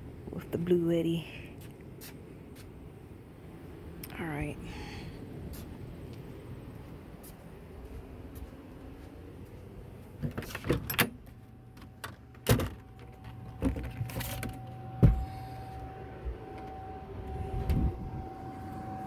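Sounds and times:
air conditioner humming: 0.0 - 19.0
door being worked: 10.2 - 15.4
knocks and thuds of footsteps: 15.0 - 15.4.

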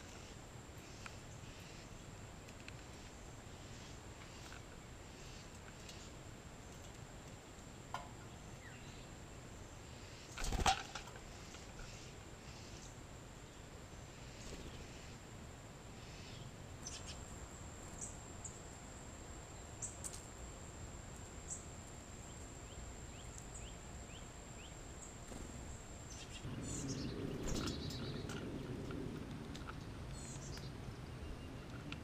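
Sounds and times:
high insect drone: 15.9 - 28.4
bird chirps and calls: 16.1 - 17.3
low rumble: 26.4 - 30.1.

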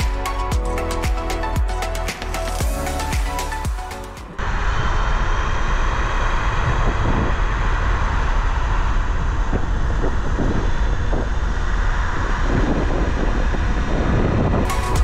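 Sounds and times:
road and tyre noise: 0.0 - 15.0
wind rumbling on microphone: 4.2 - 15.0.

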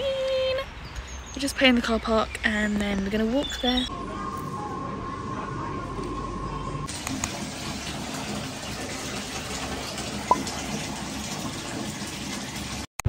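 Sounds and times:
tap water filling bathtub: 6.9 - 12.9.

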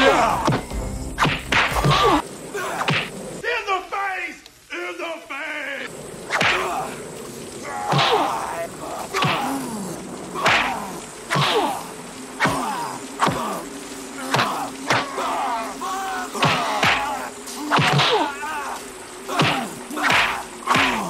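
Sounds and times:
fighters grunting and yelling: 0.0 - 0.7, 1.7 - 3.2, 6.4 - 21.0
heavy rain hiss: 0.0 - 21.0.

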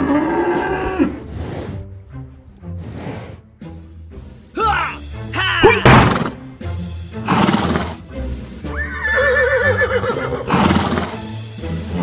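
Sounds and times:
horse whinnying: 0.0 - 1.7, 5.6 - 6.4, 7.2 - 8.0, 8.7 - 11.3
background music: 0.0 - 12.0.

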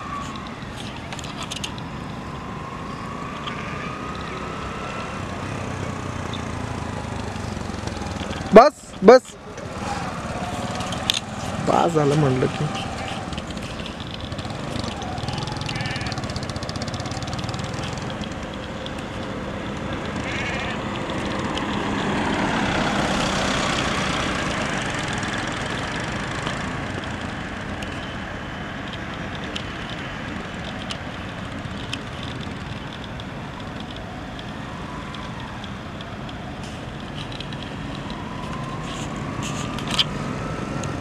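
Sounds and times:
motorcycle engines: 0.0 - 41.0
vehicle passing: 0.0 - 41.0
vehicle tyre noise: 0.0 - 41.0.

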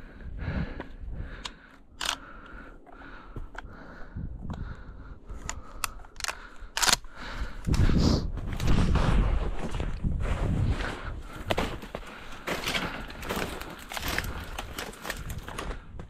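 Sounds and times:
sharp clicks and snaps: 1.4 - 2.6, 5.4 - 7.9
footfalls: 8.3 - 16.0.

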